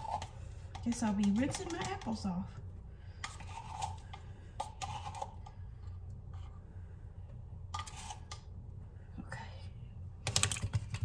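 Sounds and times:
metal spoon scraping a can: 0.0 - 2.2, 3.2 - 6.5, 7.7 - 8.5
steady low hum: 0.0 - 11.0.

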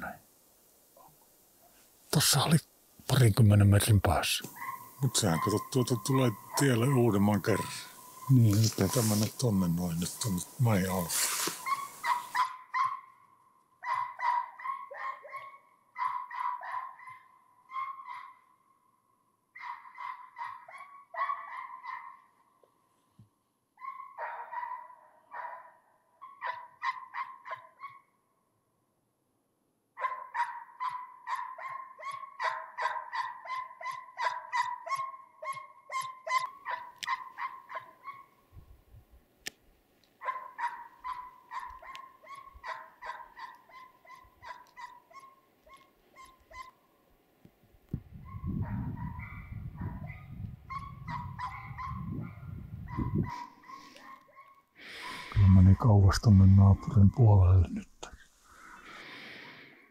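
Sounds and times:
hound baying: 4.5 - 13.2, 13.8 - 18.4, 19.6 - 22.2, 23.8 - 28.0, 30.0 - 38.4, 40.2 - 46.8, 48.3 - 55.7.

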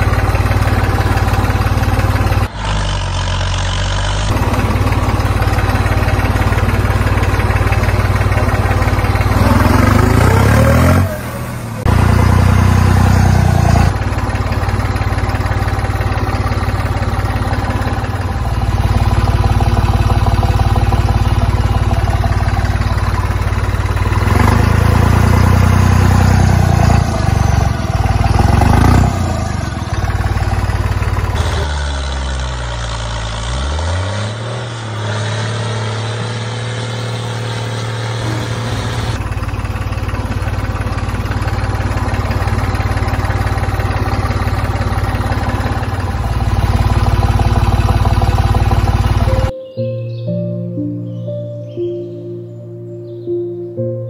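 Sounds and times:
motor humming: 36.5 - 49.5.

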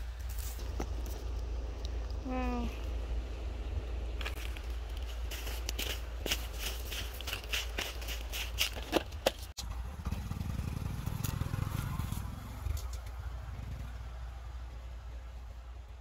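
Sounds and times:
motorcycle engine idling: 9.6 - 16.0.

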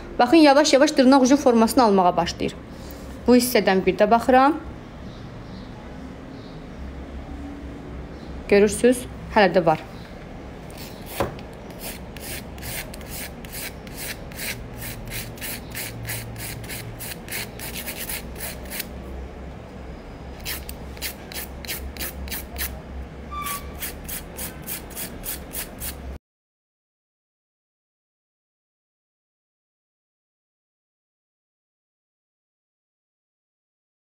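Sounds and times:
nail file rasping: 10.7 - 18.9, 20.4 - 22.8, 23.5 - 26.0.

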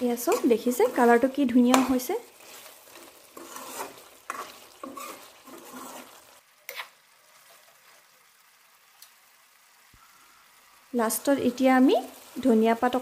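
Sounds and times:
metal spatula scraping pan: 0.0 - 7.8
food sizzling: 0.0 - 13.0.

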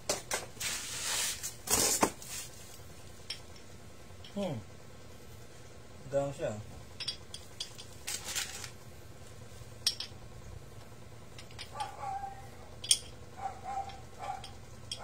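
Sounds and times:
metal scrape: 0.6 - 2.6
sharp metallic clinks: 11.3 - 15.0.

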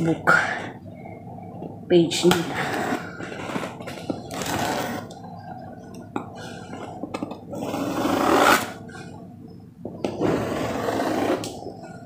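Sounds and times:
knife scraping packing tape: 7.8 - 8.8.

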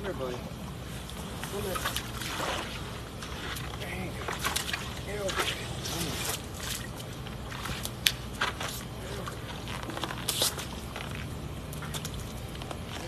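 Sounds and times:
flip-flop footsteps on wet concrete: 6.3 - 13.0.

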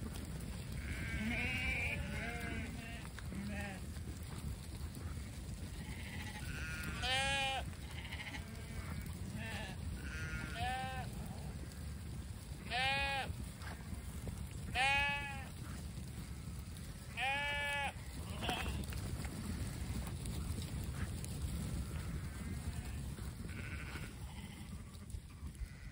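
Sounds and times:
sheep bleating: 0.7 - 3.9, 5.6 - 11.8, 12.6 - 13.4, 14.7 - 15.6, 17.0 - 19.9, 21.8 - 25.9.

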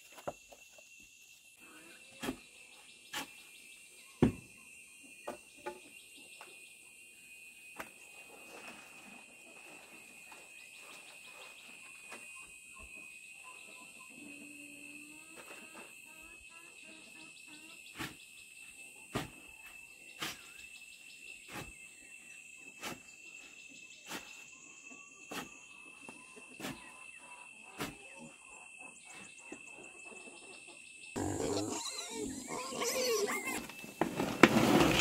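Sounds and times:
insects droning: 0.0 - 35.0
rough animal-like noise: 31.2 - 35.0.

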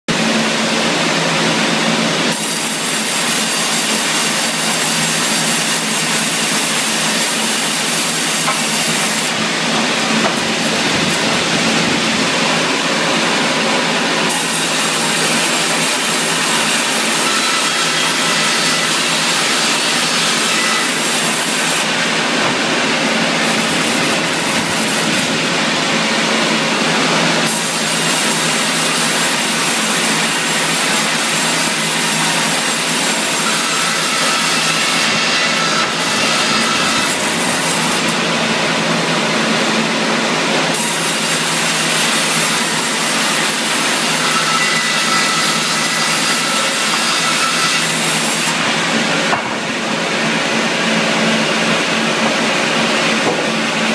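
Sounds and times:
saw cutting through wood: 0.1 - 53.9.

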